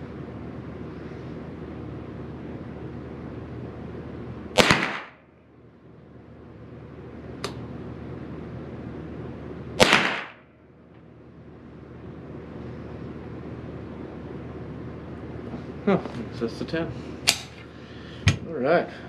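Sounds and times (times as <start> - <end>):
rifle shots with echo: 4.6 - 5.2, 9.8 - 10.4.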